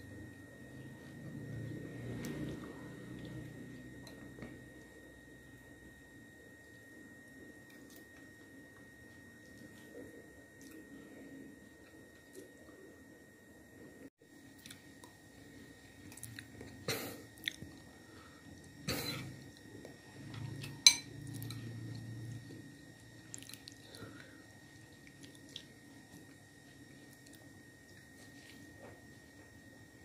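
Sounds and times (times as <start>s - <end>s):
chewing: 14.6s - 15.2s, 16.0s - 16.8s, 17.4s - 17.9s, 23.2s - 24.2s, 24.9s - 28.9s
spoon clinking on bowl: 20.8s - 21.1s.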